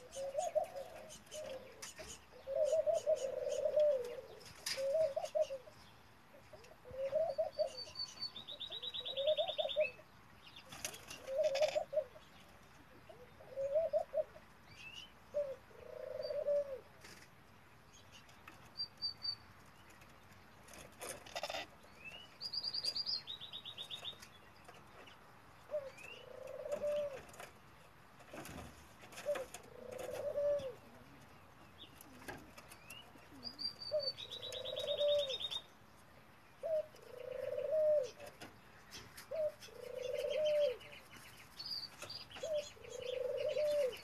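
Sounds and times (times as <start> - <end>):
dove cooing: 0.0 - 10.1, 10.7 - 14.5, 15.3 - 17.2, 20.7 - 21.8, 25.6 - 27.6, 28.2 - 35.7, 36.6 - 38.5, 39.2 - 41.1, 42.0 - 44.0
bird chirping trill: 7.1 - 12.0, 18.0 - 19.5, 21.4 - 25.2, 32.8 - 35.8, 38.9 - 44.0.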